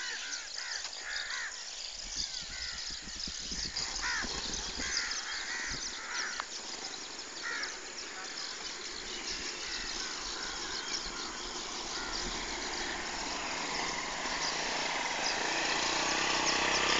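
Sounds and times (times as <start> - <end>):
crows cawing: 0.0 - 1.8, 3.9 - 6.5, 7.4 - 8.5, 9.6 - 12.9.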